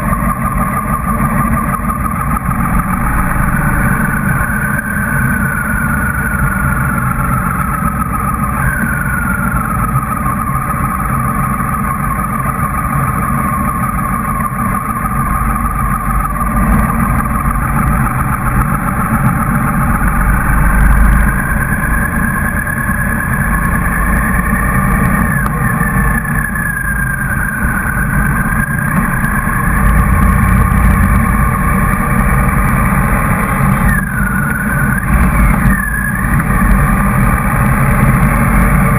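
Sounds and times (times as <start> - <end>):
motorcycle engine running: 0.0 - 38.9
thin sliding whistle: 0.1 - 10.6, 20.2 - 31.1, 33.5 - 36.8.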